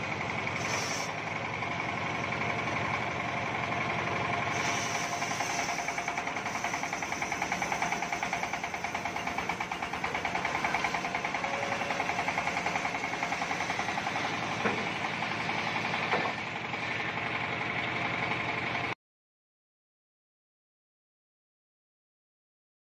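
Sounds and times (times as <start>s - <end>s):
saw blade whine: 0.0s - 18.2s
sawmill engine pulsing: 0.0s - 19.0s.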